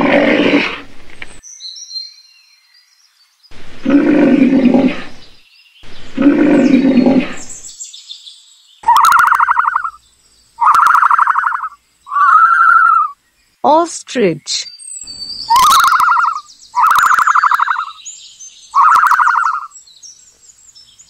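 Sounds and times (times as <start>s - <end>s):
rhinoceros bellows: 3.8s - 5.2s, 6.2s - 7.5s
faint high chirps: 8.8s - 10.0s, 10.6s - 13.2s, 15.0s - 18.0s, 18.7s - 19.7s
higher-pitched buzzy calls: 8.8s - 10.0s, 10.6s - 13.2s, 15.5s - 18.0s, 18.7s - 19.7s.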